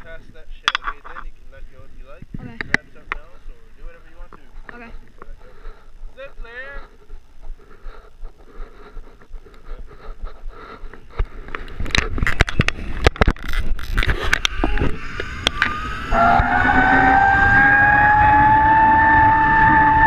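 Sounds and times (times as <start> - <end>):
zipline pulleys whining on cable: 13.4 - 20.0.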